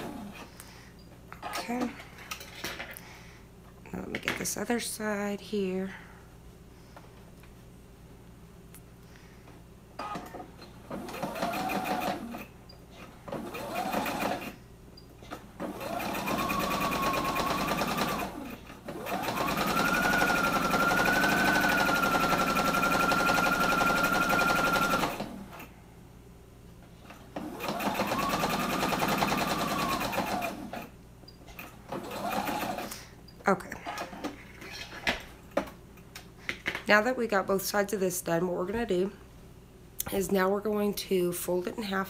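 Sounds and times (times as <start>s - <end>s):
sewing machine stitching: 10.0s - 12.5s, 13.3s - 14.6s, 15.2s - 25.7s, 27.4s - 30.9s, 31.6s - 33.0s.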